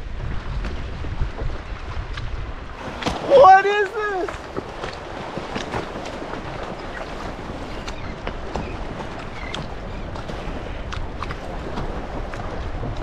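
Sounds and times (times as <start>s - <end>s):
water lapping against a kayak: 0.0s - 13.0s
wind buffeting the microphone: 0.0s - 13.0s
fish splashing at the surface: 2.8s - 12.6s.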